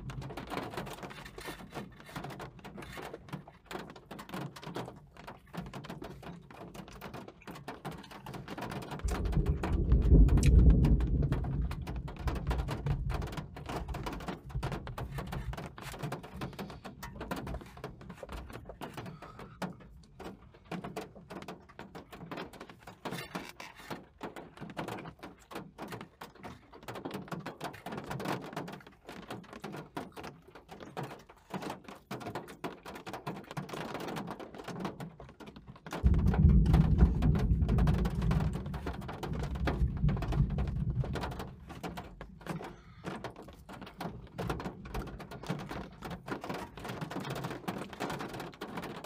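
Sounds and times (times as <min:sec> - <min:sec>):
rain pattering on car roof: 0:00.0 - 0:49.0
thunder rumble: 0:09.0 - 0:14.0, 0:36.0 - 0:42.4.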